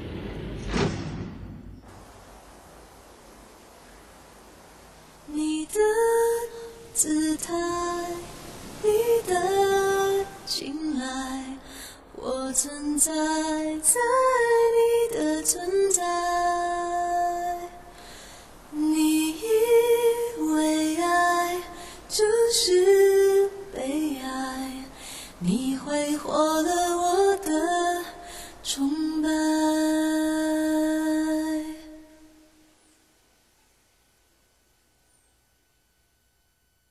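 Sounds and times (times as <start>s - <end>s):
woman singing pop ballad: 5.3s - 17.9s, 18.7s - 32.1s.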